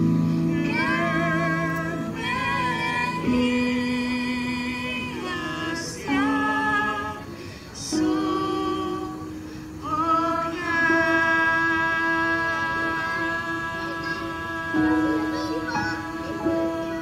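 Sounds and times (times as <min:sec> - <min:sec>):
women singing slow song: 0:00.0 - 0:17.0
electronic keyboard: 0:10.8 - 0:17.0.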